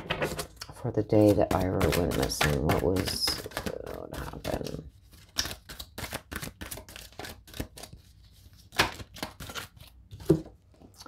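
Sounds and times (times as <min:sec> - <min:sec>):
cards shuffling snaps and clicks: 0:01.3 - 0:09.9.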